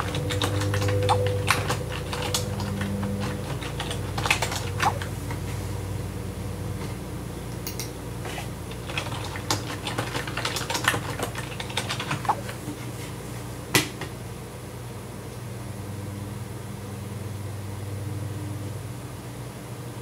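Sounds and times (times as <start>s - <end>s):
typing on computer keyboard: 0.0s - 5.0s, 8.8s - 12.4s.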